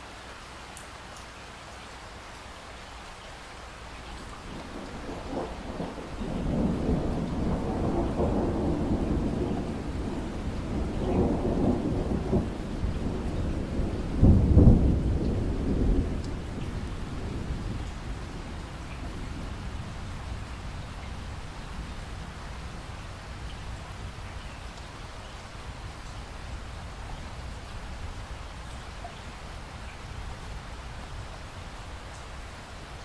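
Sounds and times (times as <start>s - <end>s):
steady rain falling: 0.0s - 33.0s
thunder rolling: 4.4s - 20.5s.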